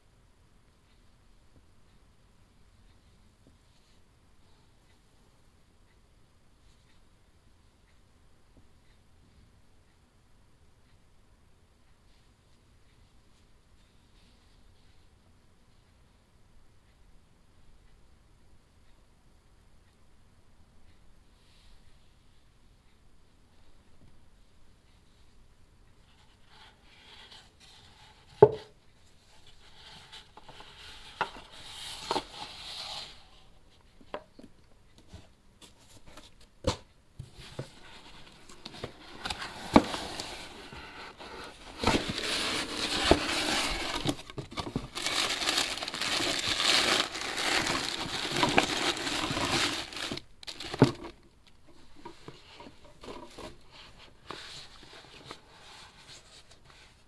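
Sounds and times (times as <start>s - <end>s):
cardboard box rustling and crinkling: 37.3s - 51.2s.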